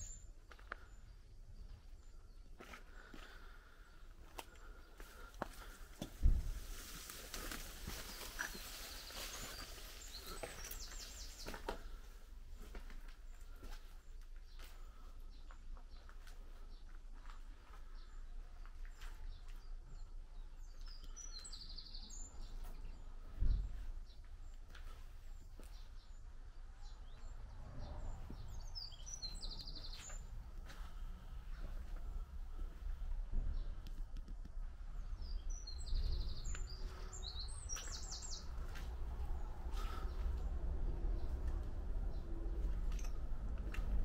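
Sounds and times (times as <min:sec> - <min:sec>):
songbirds chirping: 0:00.0 - 0:44.0
dull low thump: 0:06.0 - 0:06.7, 0:23.3 - 0:24.0
steady low rumble: 0:23.0 - 0:44.0
small bird chirping: 0:35.1 - 0:38.7.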